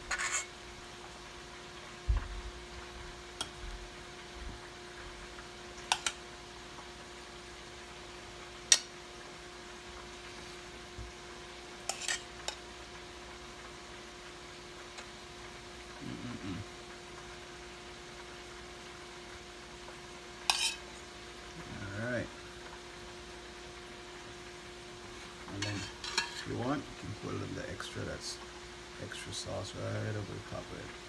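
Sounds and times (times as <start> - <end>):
faint steady hum: 0.0 - 31.0
utensil clinking on pot and plate: 0.1 - 0.5, 5.9 - 6.2, 11.9 - 12.6, 20.5 - 20.9, 25.6 - 26.5.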